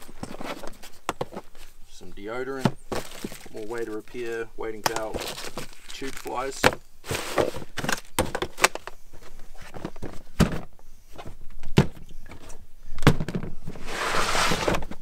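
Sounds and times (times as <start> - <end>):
plastic box knocks and thunks: 2.6 - 3.5, 6.6 - 8.9, 9.7 - 12.4, 13.0 - 13.6
scraping rustle: 2.9 - 8.2, 13.7 - 15.0.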